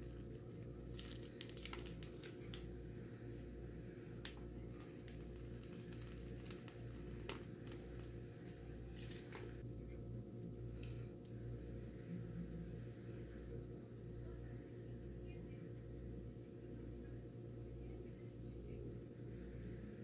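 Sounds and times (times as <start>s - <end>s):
crinkling and clicking of handling: 0.0s - 2.7s, 4.2s - 9.6s
low hum: 0.0s - 20.0s.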